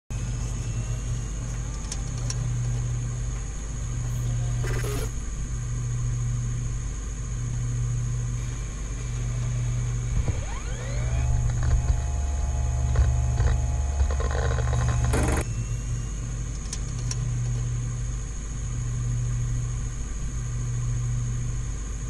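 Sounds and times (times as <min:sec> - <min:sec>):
thin high whine: 0:00.1 - 0:21.7
low pulsing electronic drone: 0:00.1 - 0:22.0
rising electronic sweep: 0:10.0 - 0:15.4
crackly glitch: 0:10.0 - 0:15.5.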